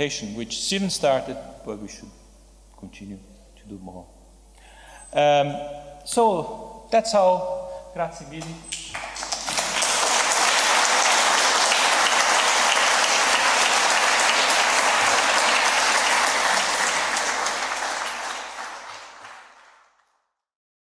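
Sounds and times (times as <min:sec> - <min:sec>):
audience applauding: 0:08.9 - 0:20.1.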